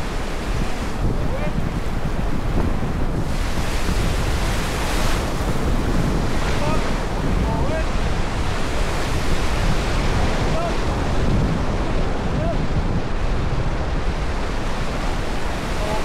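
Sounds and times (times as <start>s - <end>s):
whitewater rushing: 0.0s - 16.0s
wind buffeting microphone: 0.0s - 16.0s.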